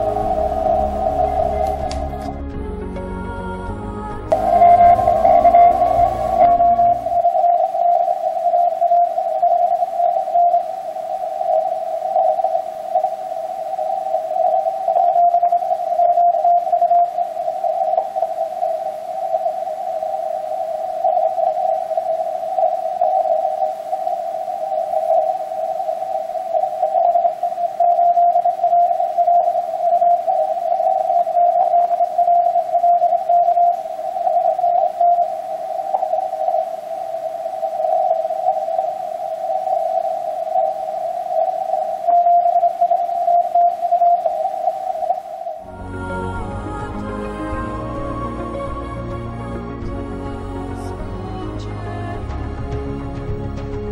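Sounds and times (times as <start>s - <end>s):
morse code tones: 0.0s - 2.4s, 4.3s - 45.7s.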